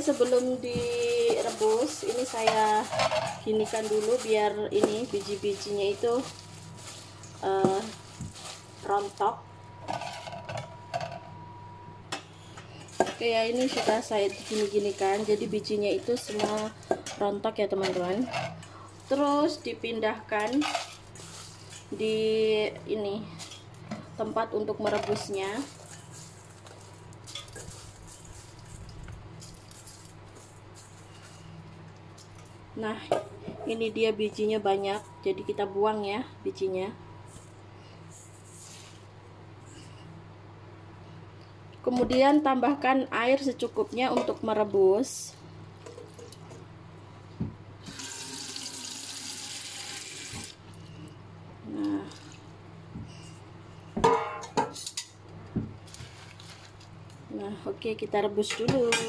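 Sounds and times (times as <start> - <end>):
dried chilies rustling into pot: 0.0 - 9.4, 12.8 - 16.9, 20.3 - 22.6, 25.2 - 32.6, 37.3 - 39.2, 55.8 - 57.3
steady low hum: 0.0 - 47.9
water pouring into metal pot: 47.9 - 50.3.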